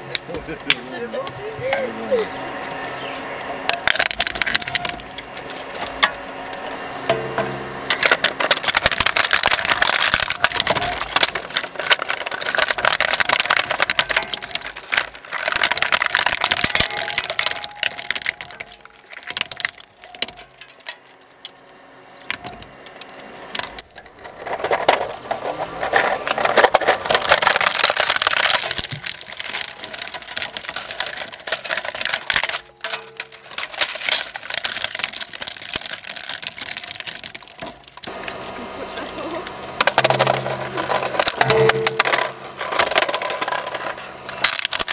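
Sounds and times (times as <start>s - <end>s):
shredder crunching plastic: 0.0s - 2.3s, 3.0s - 44.9s.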